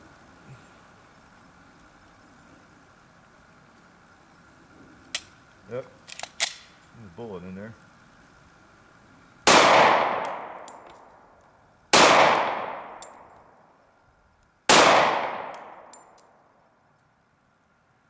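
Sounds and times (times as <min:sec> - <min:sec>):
pistol shots ringing out: 0:09.5 - 0:10.8, 0:11.9 - 0:13.3, 0:14.7 - 0:16.2
faint metallic clinks: 0:15.8 - 0:16.4.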